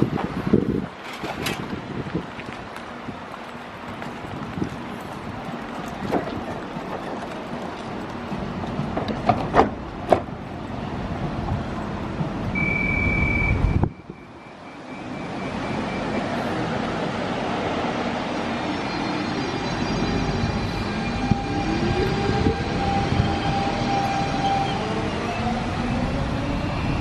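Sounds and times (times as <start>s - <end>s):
train doors shutting: 0.0s - 1.9s, 5.7s - 27.0s
train hum: 0.0s - 27.0s
train running noise: 0.0s - 27.0s
short high beep: 12.6s - 16.3s.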